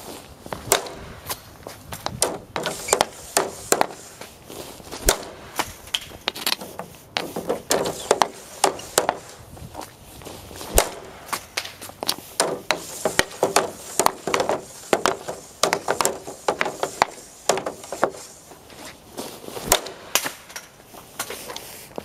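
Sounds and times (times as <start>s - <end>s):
hockey stick hitting pucks on ice: 0.6s - 1.4s, 2.0s - 4.3s, 5.0s - 9.4s, 10.7s - 18.2s, 19.6s - 21.4s.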